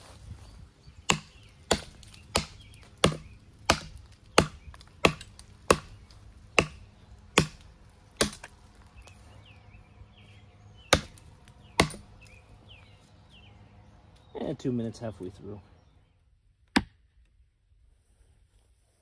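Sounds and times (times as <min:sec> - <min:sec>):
tomahawk chopping into wood: 0:01.0 - 0:08.6, 0:10.8 - 0:12.4.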